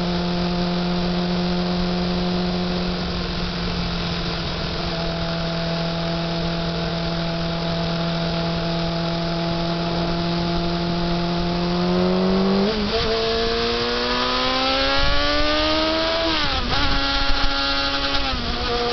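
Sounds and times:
motorcycle engine: 0:00.0 - 0:18.9.

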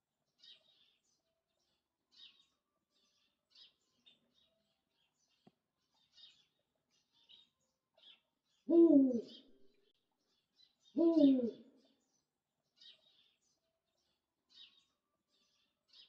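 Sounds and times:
small birds chirping: 0:00.0 - 0:16.0
owl giving deep hoots: 0:08.7 - 0:09.6, 0:11.0 - 0:11.7.

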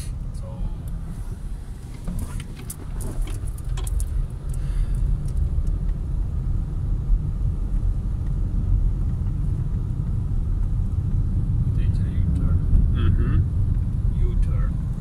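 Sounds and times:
car engine and road rumble: 0:00.0 - 0:15.0.

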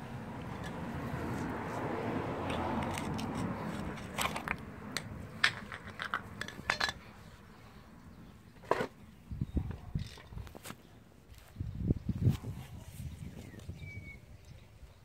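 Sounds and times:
metal tool clicking and scraping: 0:00.5 - 0:00.8, 0:02.4 - 0:07.1.

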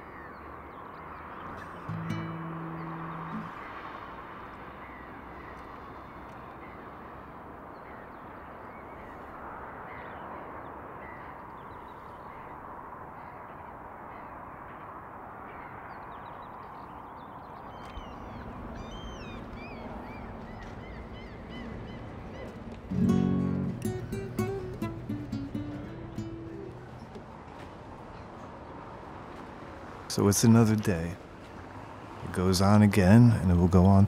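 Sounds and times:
birds calling: 0:00.0 - 0:14.8, 0:15.4 - 0:34.0
distant city hum: 0:00.0 - 0:34.0.

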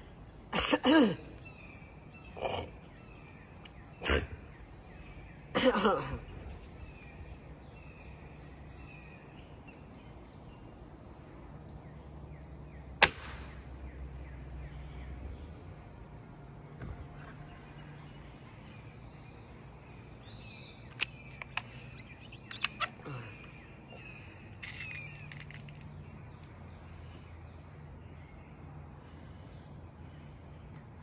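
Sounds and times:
birds chirping: 0:00.0 - 0:31.0
pellet rifle shot: 0:13.0 - 0:13.6
small clicks: 0:20.8 - 0:23.0.

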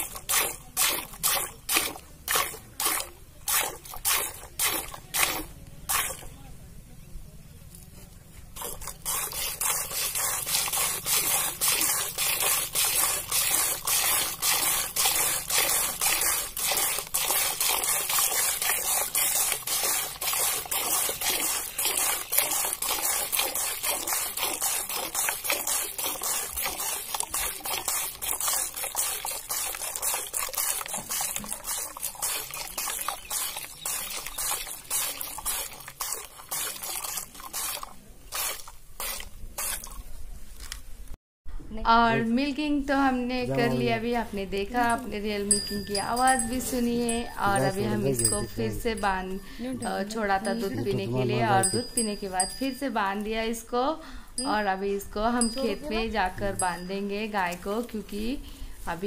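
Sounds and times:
milk squirts hissing into bowl: 0:08.6 - 0:40.0.

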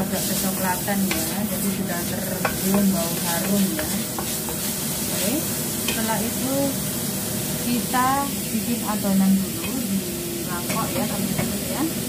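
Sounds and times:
wooden spatula scraping a pan: 0:00.0 - 0:05.3
meat sizzling in a wok: 0:00.0 - 0:12.0.

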